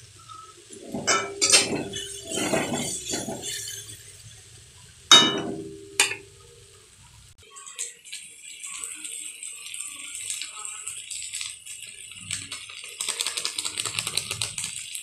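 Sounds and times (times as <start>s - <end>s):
metal spatula clinking on pan: 0.8s - 3.8s, 5.1s - 6.3s.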